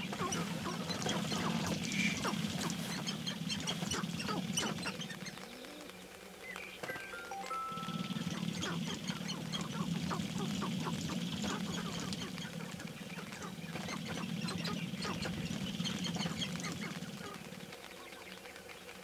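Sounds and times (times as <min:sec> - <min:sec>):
grouse quacking clucks and cackles: 0:00.0 - 0:05.4, 0:08.0 - 0:17.8
low buzz of foot-stamping birds: 0:00.0 - 0:19.0.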